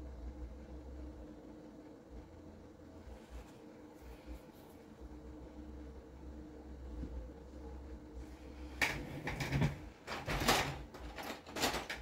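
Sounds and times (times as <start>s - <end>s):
low steady hum: 0.0s - 12.0s
knocking and scraping noises: 8.7s - 12.0s.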